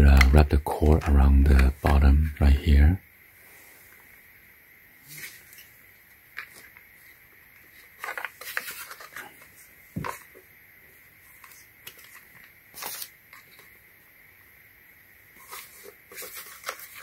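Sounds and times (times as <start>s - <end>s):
plastic handling rustles and clicks: 0.0s - 2.7s, 6.3s - 6.9s, 7.6s - 10.4s, 11.2s - 13.8s, 15.4s - 17.0s.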